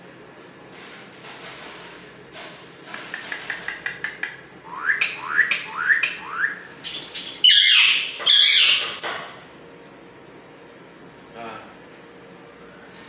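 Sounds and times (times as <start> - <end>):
bird clicking chirps: 3.0 - 7.5
bird rising whistled calls: 4.7 - 8.9
parrot harsh squawks: 4.8 - 9.0.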